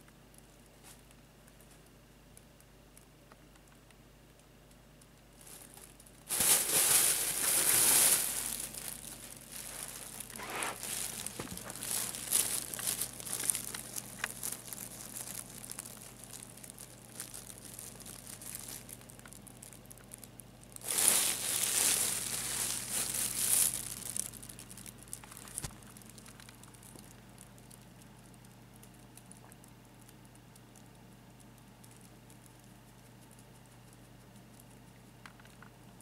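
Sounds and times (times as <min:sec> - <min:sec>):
nylon tunnel crinkling and rustling: 0:05.4 - 0:20.2, 0:20.8 - 0:27.0.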